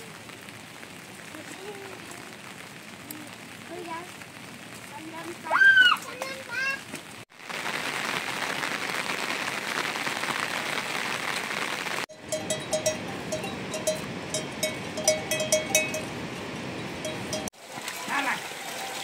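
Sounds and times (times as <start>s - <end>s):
livestock bells clanking: 12.1s - 17.5s.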